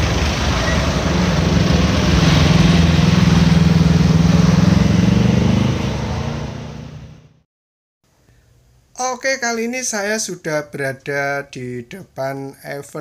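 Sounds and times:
car passing: 0.0s - 7.4s
motorcycle passing: 0.0s - 7.4s
truck engine passing: 0.0s - 7.4s.

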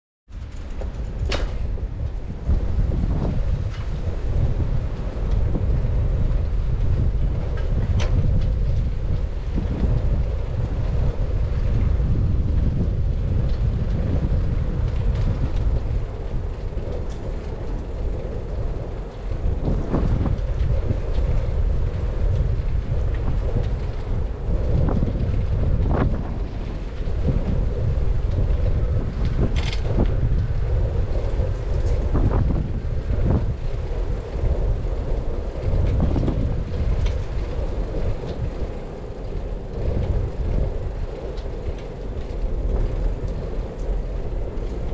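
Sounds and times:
bicycle knocks and rattles: 0.3s - 33.7s
bicycle tyre rumble: 0.3s - 44.9s
wind buffeting microphone: 0.3s - 44.9s.

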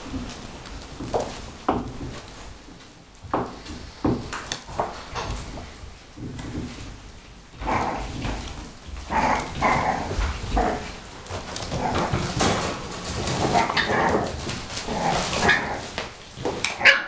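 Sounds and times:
puppies barking and yipping: 13.2s - 14.5s, 16.6s - 17.0s.

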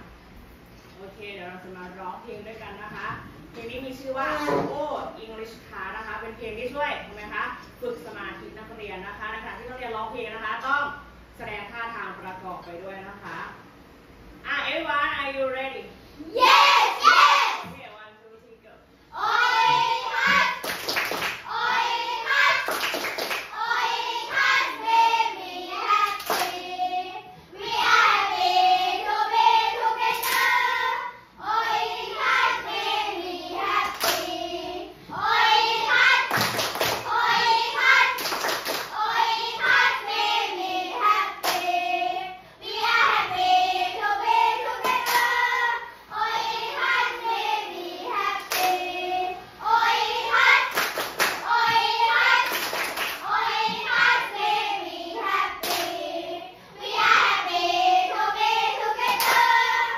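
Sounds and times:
children singing together: 19.1s - 20.8s, 21.4s - 59.9s
handclaps: 20.2s - 21.4s, 22.6s - 23.5s, 26.1s - 26.6s, 36.3s - 37.1s, 38.2s - 38.9s, 44.8s - 45.3s, 50.7s - 51.4s, 52.4s - 53.2s, 55.6s - 55.9s, 59.1s - 59.5s.

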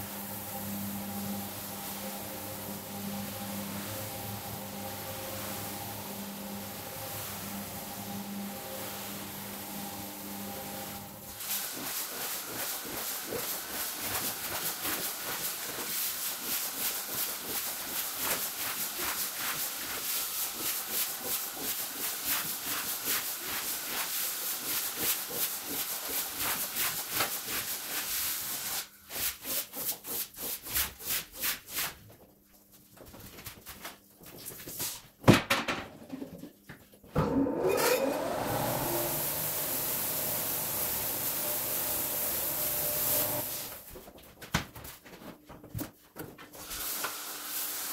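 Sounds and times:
squeegee scraping wet rug: 11.4s - 32.0s
pressure-washer spray hissing: 38.8s - 43.7s.

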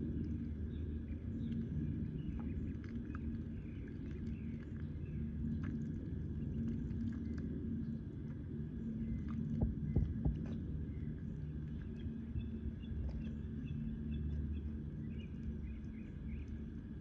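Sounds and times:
ducklings dabbling in water: 0.0s - 17.0s
steady low hum: 0.0s - 17.0s
low thumps: 9.5s - 10.6s.

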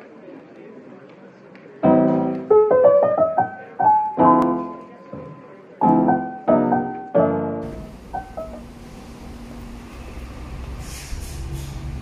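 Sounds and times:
piano chords and melody: 1.8s - 9.4s.

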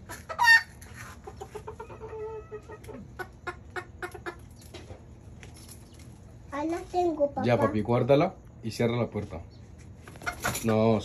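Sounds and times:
chickens clucking: 0.0s - 6.4s, 9.3s - 11.0s
chicken loud cry: 0.1s - 4.4s.

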